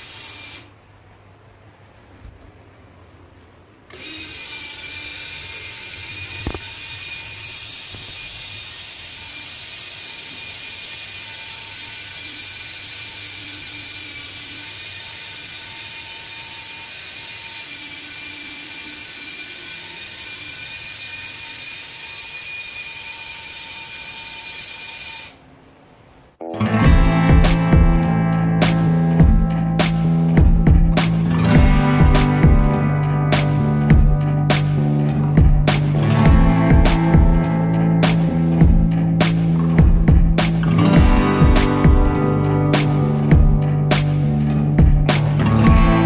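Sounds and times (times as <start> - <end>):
small electric motor whirring: 0.0 - 0.7, 3.9 - 25.4.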